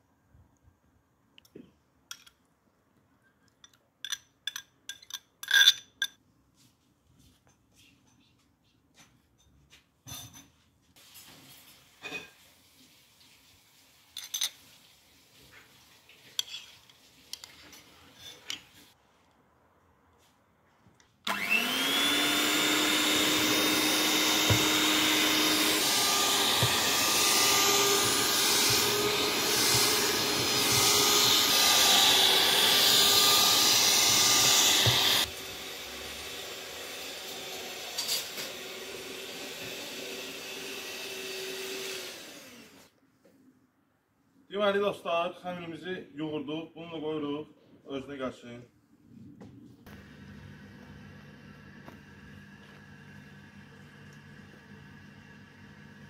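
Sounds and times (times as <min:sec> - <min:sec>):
electric hand mixer whirring: 0:21.3 - 0:42.9, 0:49.9 - 0:56.0.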